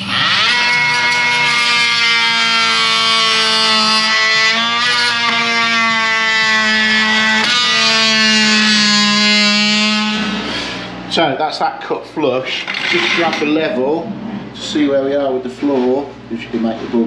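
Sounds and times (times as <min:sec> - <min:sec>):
oscillating multi-tool buzzing: 0:00.0 - 0:10.9, 0:12.6 - 0:13.8.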